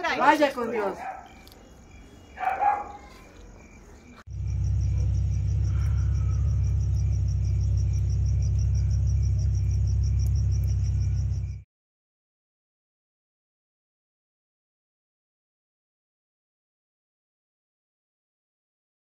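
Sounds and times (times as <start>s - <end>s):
crickets chirping: 0.0s - 11.7s
loud steady low rumble: 4.3s - 11.6s.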